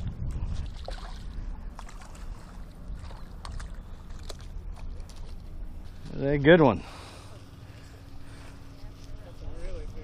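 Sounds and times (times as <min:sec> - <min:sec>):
wind rumbling on microphone: 0:00.0 - 0:06.5.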